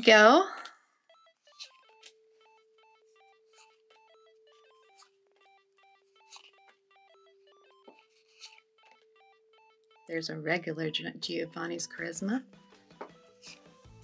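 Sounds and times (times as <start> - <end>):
electronic beeping melody: 1.0 - 10.3.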